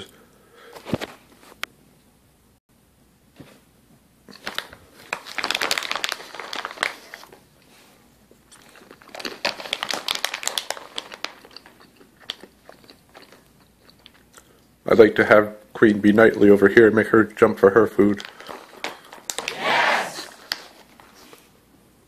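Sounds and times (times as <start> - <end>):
snack packaging rustling: 4.3 - 14.4, 18.1 - 19.6, 20.2 - 21.5.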